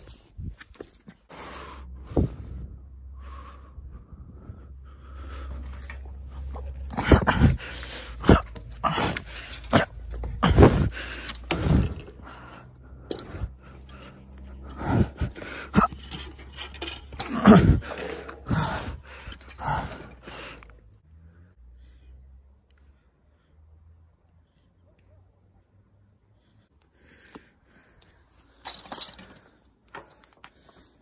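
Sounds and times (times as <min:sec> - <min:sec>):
person gasping for breath: 0:03.2 - 0:20.7.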